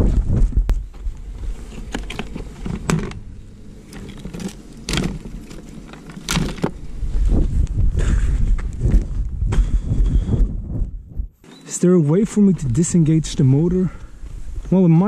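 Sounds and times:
wind rumbling on microphone: 0.0s - 11.4s, 12.2s - 15.0s
clicks and rustles of plastic: 3.8s - 6.8s.

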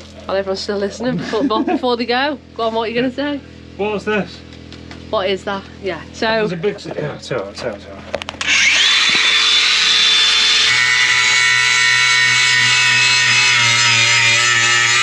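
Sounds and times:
power tool motor whining: 8.3s - 15.0s.

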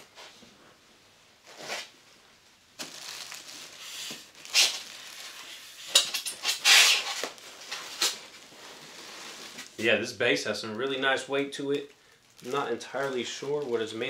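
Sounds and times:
box packaging rustling and scraping: 2.8s - 9.8s.

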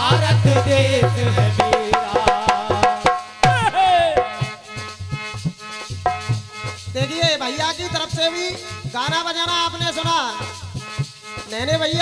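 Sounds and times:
hand drum beat: 0.0s - 4.6s, 5.9s - 7.1s.

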